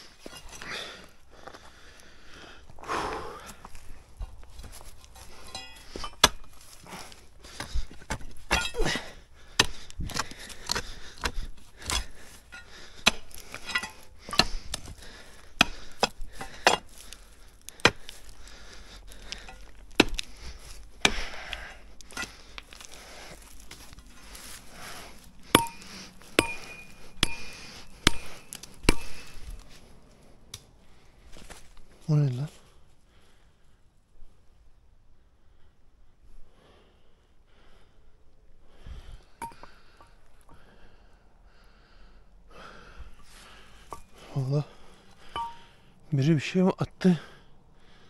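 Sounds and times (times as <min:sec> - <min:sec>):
hand tool striking stone and earth: 0:00.1 - 0:00.9, 0:04.2 - 0:29.8, 0:39.4 - 0:40.2, 0:43.2 - 0:45.8
short metallic ring: 0:45.3 - 0:45.7.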